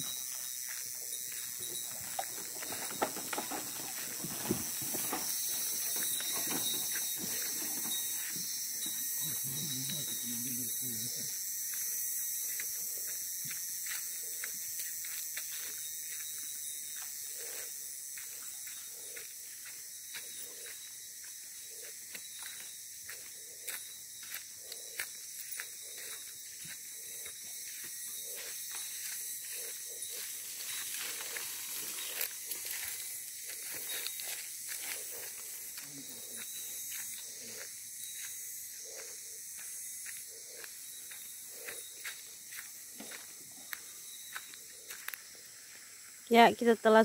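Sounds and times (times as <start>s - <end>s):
footsteps on grass and leaves: 0.0s - 10.3s, 11.6s - 46.1s.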